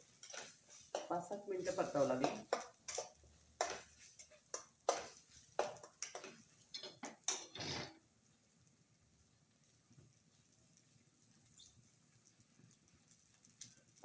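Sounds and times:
metal spatula scraping a steel pan: 0.0 - 7.9.

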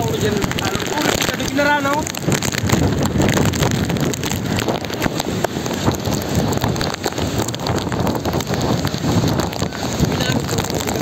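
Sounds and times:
driving rain: 0.0 - 11.0
gusting wind on microphone: 0.0 - 11.0.

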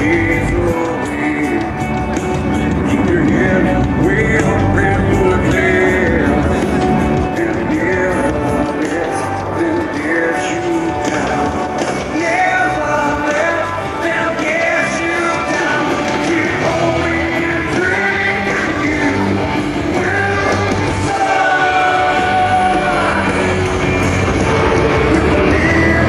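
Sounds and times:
rock music with singing: 0.0 - 26.0.

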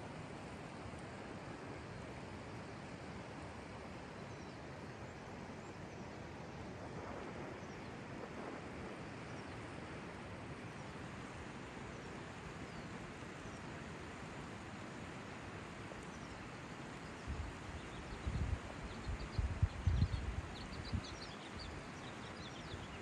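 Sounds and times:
river flowing: 0.0 - 7.0, 7.7 - 19.0.

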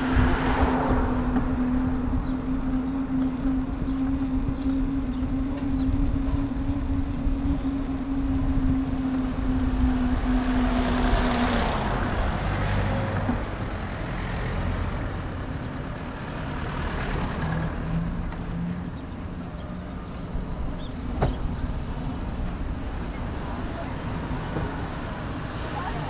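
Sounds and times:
rush of noise: 0.0 - 16.5
low traffic rumble: 0.0 - 26.0
vehicle engine humming: 0.0 - 26.0.

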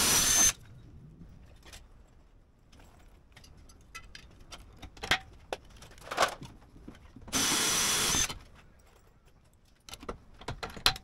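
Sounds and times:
power drill running: 0.0 - 0.6, 7.3 - 8.4.

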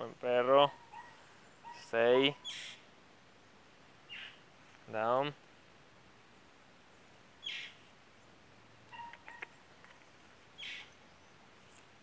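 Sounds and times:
faint bird chirps: 0.8 - 2.9, 6.3 - 11.5.

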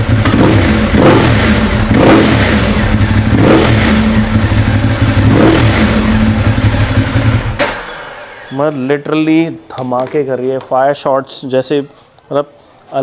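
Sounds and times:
motorcycle engine idling: 0.0 - 8.5
motorcycle engine revving: 0.0 - 8.7
exhaust bangs: 0.0 - 9.0.

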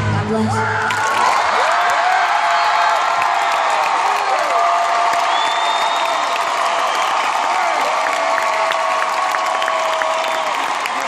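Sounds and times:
arena crowd cheering and applauding: 0.0 - 11.0
whoops from crowd: 0.6 - 11.0.

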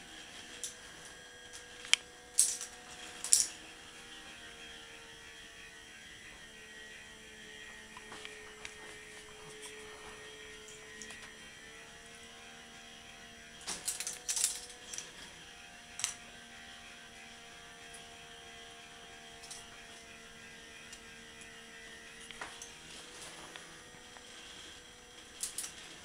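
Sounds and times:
motor hum: 0.0 - 26.0
plastic balls clattering on track: 2.4 - 3.6, 13.7 - 15.1.

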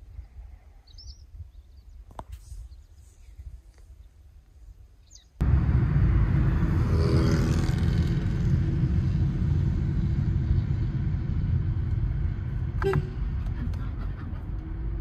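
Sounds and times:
car engine and road noise: 5.4 - 15.0.

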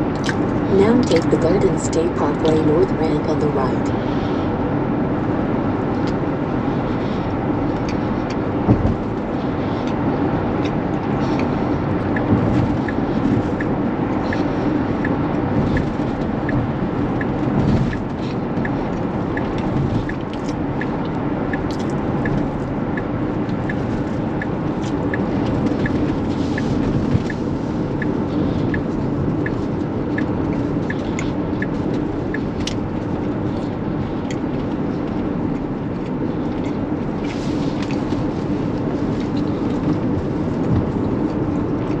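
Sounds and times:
tyre and road noise: 0.0 - 42.0
turn signal ticking: 6.0 - 37.2.

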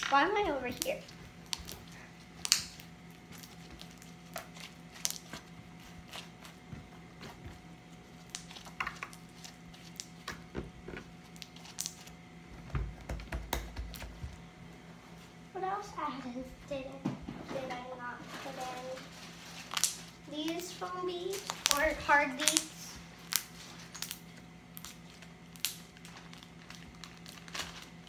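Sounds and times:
faint steady hum: 0.0 - 28.0
slime squishing and popping: 0.8 - 6.3, 11.3 - 12.2, 19.6 - 20.1, 21.3 - 28.0.

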